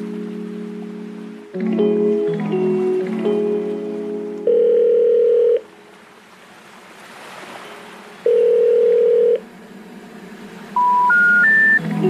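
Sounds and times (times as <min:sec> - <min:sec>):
rising three-note tone: 0:00.0 - 0:05.0, 0:09.3 - 0:12.0
steady telephone beep: 0:04.5 - 0:05.6, 0:08.3 - 0:09.4, 0:10.8 - 0:11.8.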